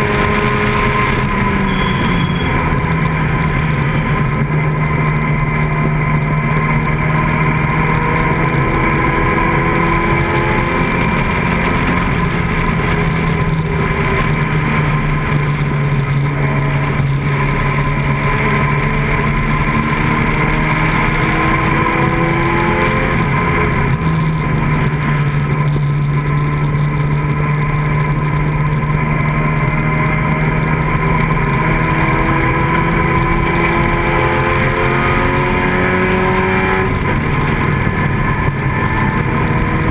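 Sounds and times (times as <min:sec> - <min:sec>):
wind noise: 0:00.0 - 0:29.1, 0:30.7 - 0:39.9
racing car engine accelerating: 0:00.0 - 0:39.9.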